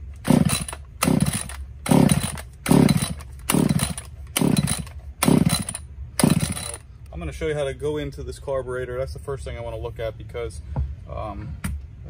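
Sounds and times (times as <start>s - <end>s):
chainsaw starter rope yanks: 0.0s - 6.9s.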